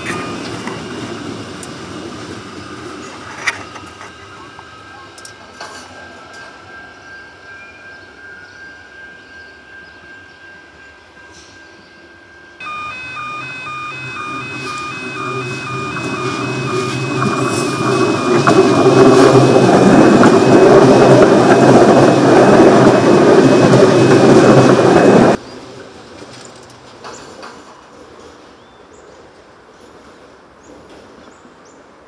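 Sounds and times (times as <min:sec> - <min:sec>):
electric train running past: 0:00.0 - 0:26.2
approaching train rumble: 0:00.0 - 0:28.6
two-tone level crossing alarm: 0:12.6 - 0:25.4.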